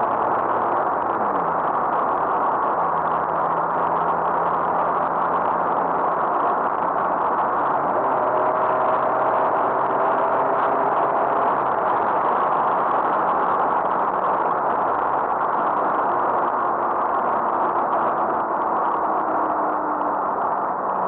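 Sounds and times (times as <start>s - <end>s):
road and wind noise in car cabin: 0.0s - 21.0s.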